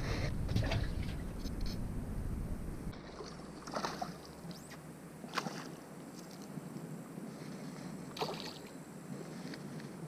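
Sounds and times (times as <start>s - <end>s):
low rumble: 0.0s - 3.0s.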